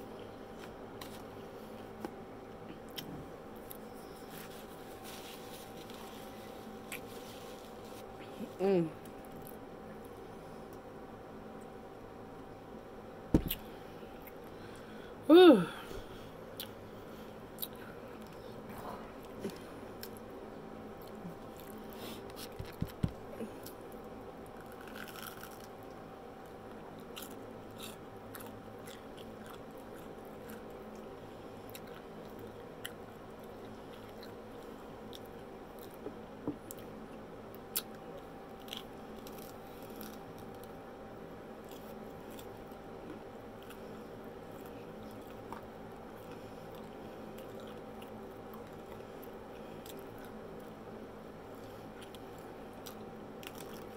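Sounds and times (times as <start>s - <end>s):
crunchy chewing: 2.8s - 10.8s, 21.0s - 40.8s, 41.6s - 50.8s, 51.5s - 53.9s.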